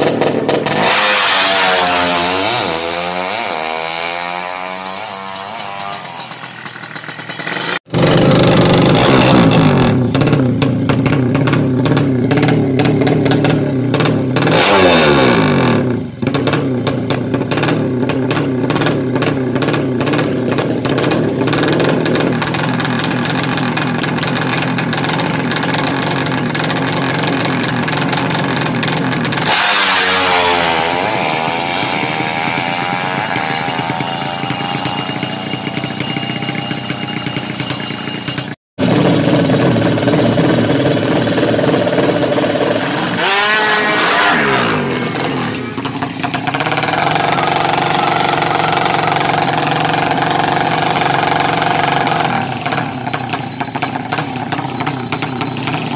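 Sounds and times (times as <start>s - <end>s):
motorcycle engine revving high: 0.0s - 55.9s.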